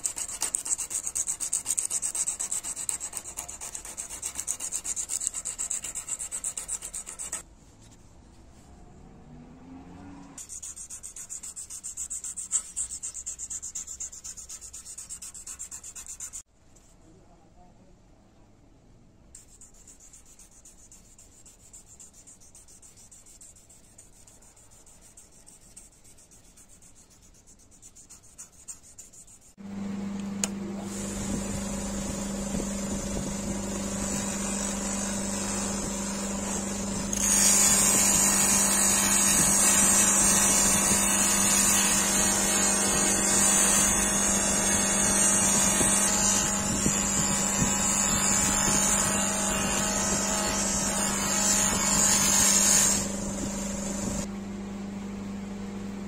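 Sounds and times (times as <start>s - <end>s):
sandpaper rustling: 10.4s - 16.4s, 19.4s - 29.6s
bench buffer motor humming: 29.6s - 54.8s.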